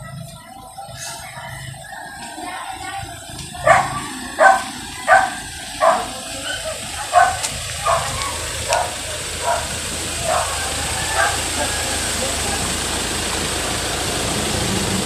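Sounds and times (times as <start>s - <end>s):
low vehicle rumble: 0.0s - 15.0s
dog barking: 3.6s - 12.0s.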